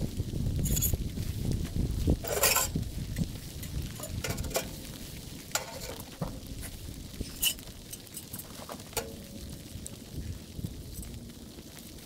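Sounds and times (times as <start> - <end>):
metal stovepipe clinking and scraping: 2.2 - 2.8, 3.6 - 4.8, 5.5 - 6.5, 7.3 - 9.2.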